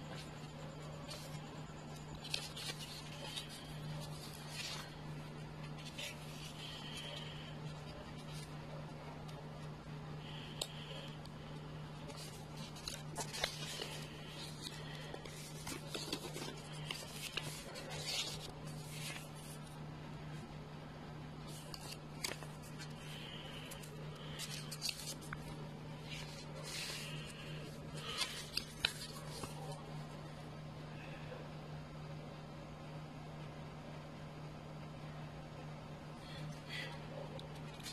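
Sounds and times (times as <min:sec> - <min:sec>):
steady low hum: 0:00.0 - 0:37.9
paper pages rustling: 0:00.1 - 0:19.8, 0:21.4 - 0:30.2, 0:36.4 - 0:37.9.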